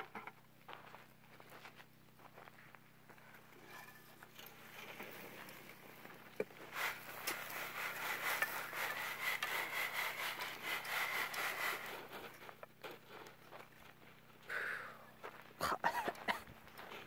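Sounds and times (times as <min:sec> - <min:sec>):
gravel shaken on sifting screen: 0:06.6 - 0:12.6.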